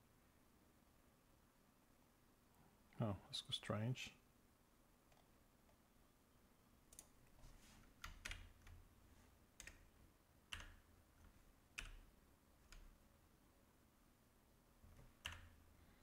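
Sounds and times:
keyboard keystrokes: 8.0s - 8.8s, 9.6s - 9.9s, 10.5s - 12.9s, 14.9s - 15.6s.

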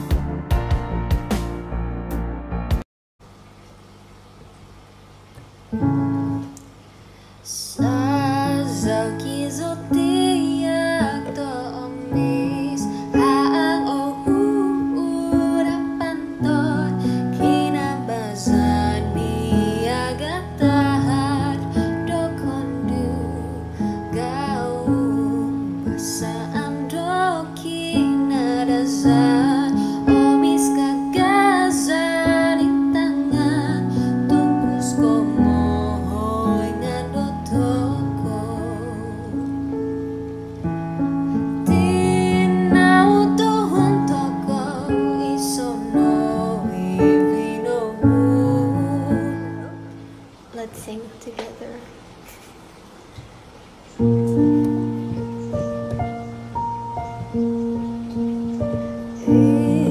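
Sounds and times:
woman singing with vibrato: 7.5s - 39.5s, 41.6s - 49.9s, 59.2s - 59.9s.

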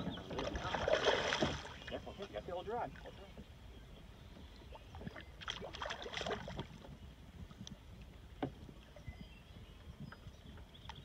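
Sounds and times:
fish splashing in water: 0.3s - 2.0s, 5.1s - 6.8s.

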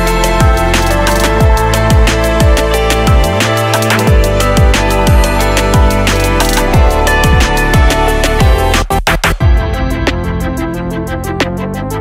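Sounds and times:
electronic music: 0.0s - 12.0s
deep kick drums: 1.3s - 10.7s.

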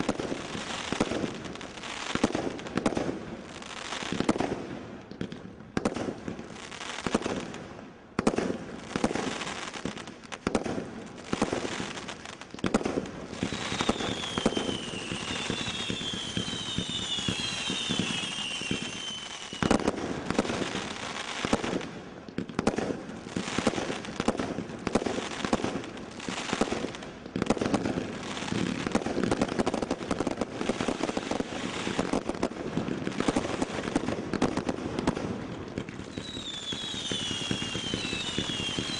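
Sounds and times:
firework whistles: 13.3s - 21.6s, 36.0s - 38.9s.

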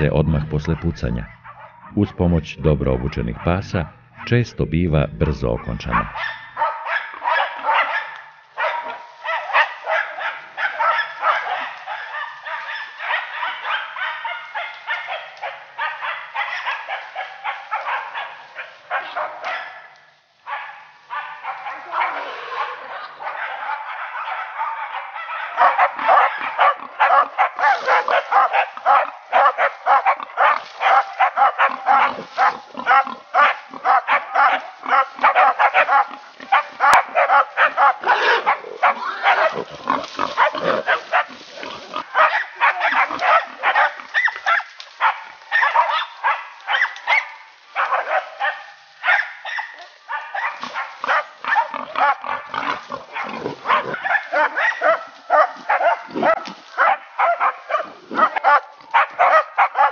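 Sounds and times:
hunting dogs barking and baying: 0.0s - 59.9s
boar squealing: 25.6s - 44.7s, 50.6s - 56.6s.

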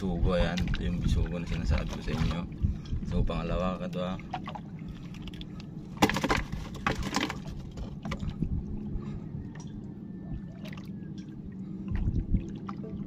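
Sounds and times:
steady low hum: 0.0s - 13.0s
water sloshing against boat hull: 0.0s - 13.0s
sharp knocks on boat: 6.0s - 8.3s.

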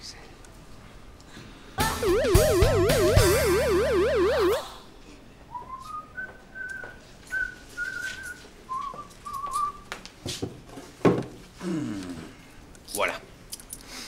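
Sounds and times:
music with warbling siren-like tones: 1.8s - 4.7s
man whistling a tune: 5.5s - 9.9s.

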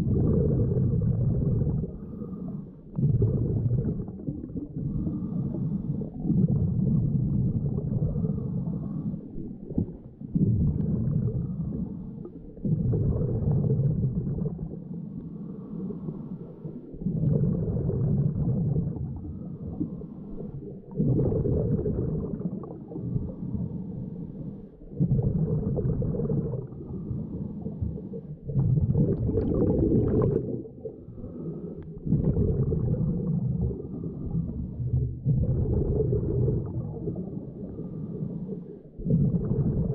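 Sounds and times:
diver exhaling bubbles underwater: 0.0s - 39.9s
diver inhaling through regulator: 1.8s - 3.0s, 4.8s - 6.2s, 8.0s - 9.4s, 15.3s - 18.4s, 29.2s - 34.8s, 36.4s - 39.8s.

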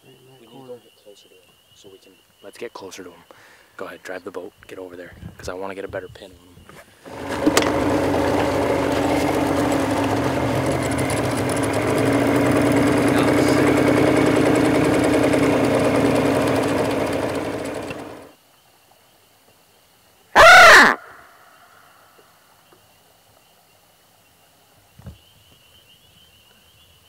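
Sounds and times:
outboard motor running: 7.1s - 18.4s
short loud call: 20.4s - 21.4s.

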